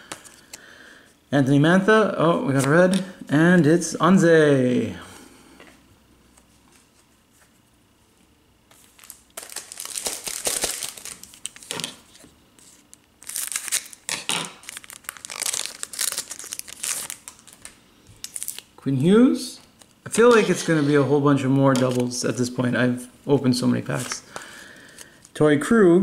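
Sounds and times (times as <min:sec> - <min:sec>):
foil wrapper crinkling: 0:08.7 - 0:18.7.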